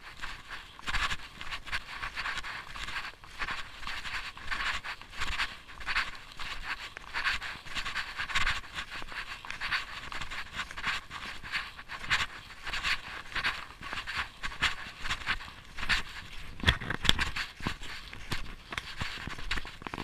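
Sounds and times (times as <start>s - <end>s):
close steady breathing: 0.0s - 20.0s.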